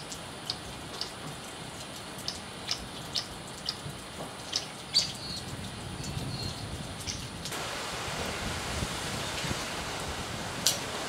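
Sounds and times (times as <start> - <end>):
water dripping: 0.0 - 7.6.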